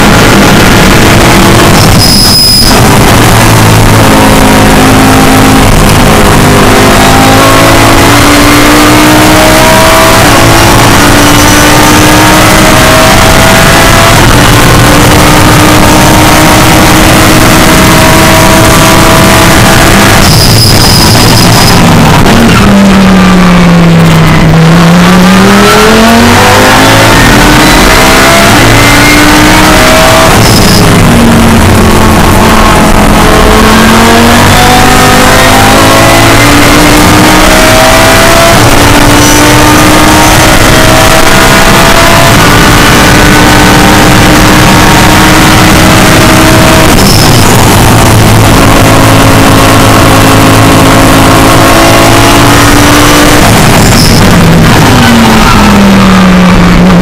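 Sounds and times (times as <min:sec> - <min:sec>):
race car engine: 0:00.0 - 0:57.0.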